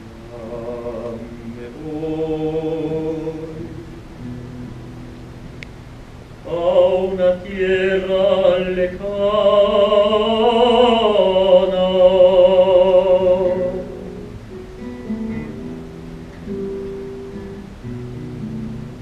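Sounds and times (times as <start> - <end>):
operatic tenor singing: 0.2 - 4.3, 6.4 - 14.2
low musical accompaniment: 11.4 - 19.0.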